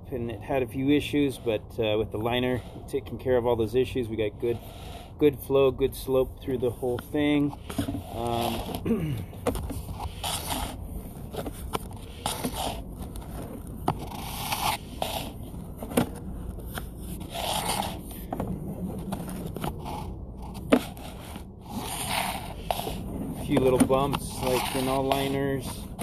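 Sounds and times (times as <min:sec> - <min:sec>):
cable scraping and rustling: 0:06.0 - 0:26.0.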